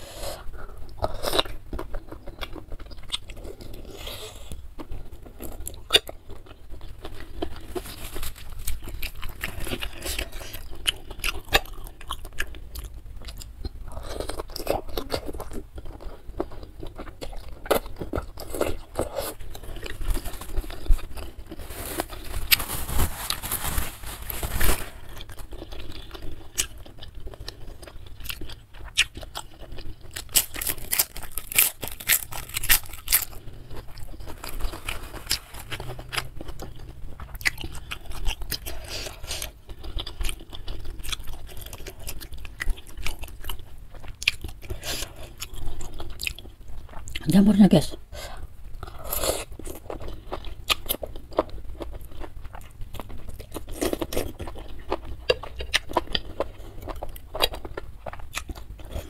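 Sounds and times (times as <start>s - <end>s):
chewing and biting noodles: 25.1s - 47.2s, 48.8s - 59.0s.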